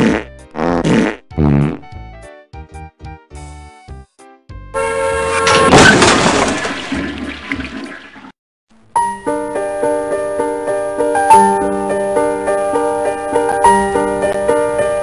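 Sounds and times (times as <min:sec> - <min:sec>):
piano music: 0:04.6 - 0:06.3, 0:09.0 - 0:15.0
car crashing through wall: 0:05.3 - 0:07.3.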